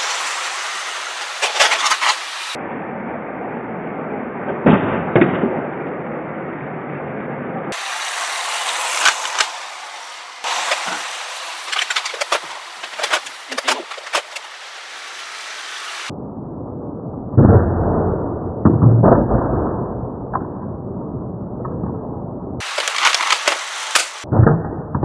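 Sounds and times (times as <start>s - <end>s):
toy train rolling on track: 0.0s - 2.6s, 7.8s - 16.1s, 22.6s - 24.3s.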